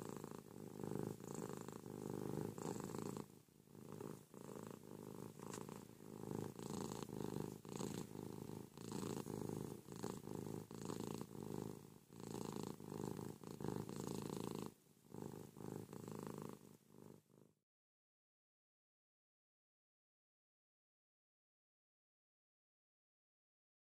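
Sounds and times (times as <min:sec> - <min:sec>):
cat purring: 0:00.0 - 0:17.6.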